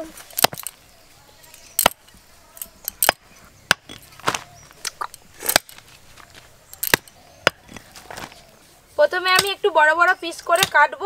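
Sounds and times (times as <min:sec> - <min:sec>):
cleaver chopping meat and bone: 0:00.3 - 0:00.8, 0:01.7 - 0:02.1, 0:02.9 - 0:08.3, 0:09.3 - 0:09.6, 0:10.6 - 0:10.8.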